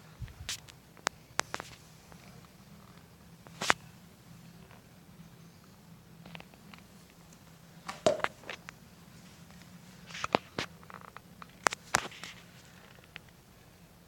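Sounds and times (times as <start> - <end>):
faint steady hum: 0.0 - 14.0
handling clicks and knocks: 7.9 - 8.6.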